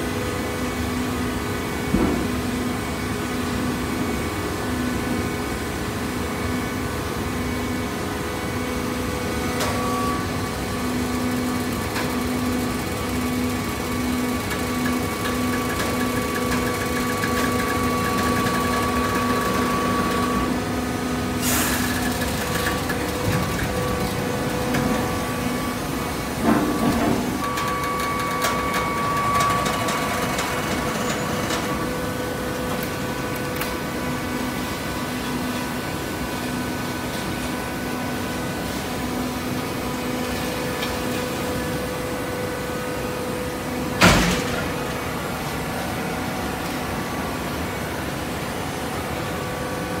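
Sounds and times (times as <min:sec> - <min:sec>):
baler machine hum: 0:08.5 - 0:35.4.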